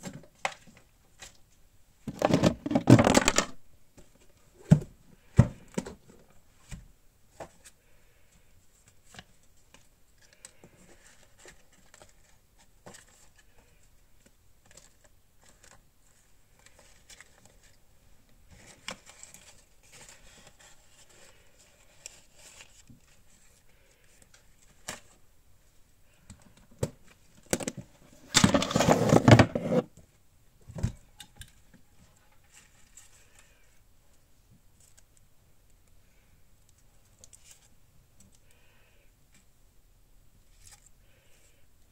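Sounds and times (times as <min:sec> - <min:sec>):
paper rustling: 0:28.3 - 0:29.8.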